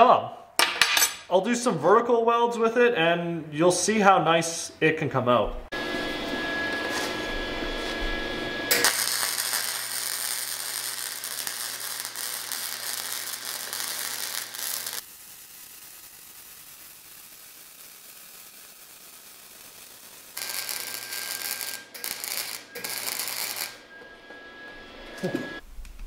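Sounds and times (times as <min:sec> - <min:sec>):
welder low hum: 0:05.6 - 0:26.0
welding arc crackling: 0:08.7 - 0:26.0.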